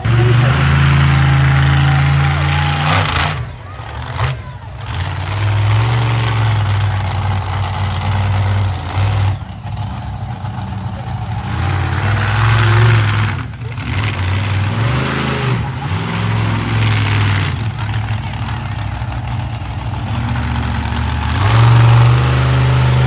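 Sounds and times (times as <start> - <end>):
monster truck engine revving: 0.0 - 23.0.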